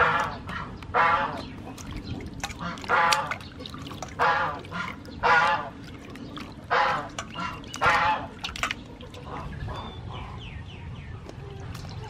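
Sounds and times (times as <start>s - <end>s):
hands splashing water in bowl: 1.3s - 9.6s.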